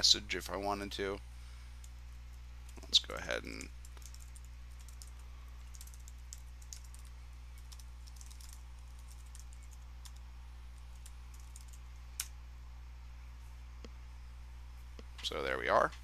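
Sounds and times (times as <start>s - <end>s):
low steady hum: 0.0s - 16.0s
keyboard typing: 2.6s - 10.2s, 10.8s - 11.8s.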